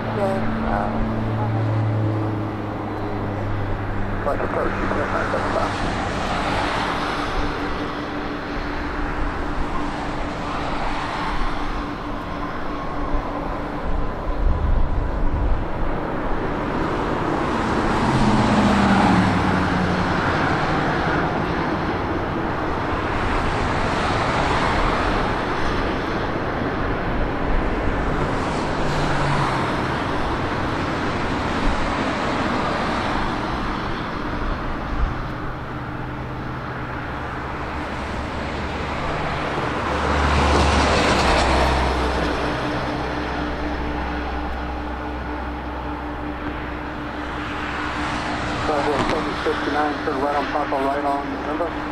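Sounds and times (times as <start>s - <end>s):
vehicle engine noise: 0.0s - 51.9s.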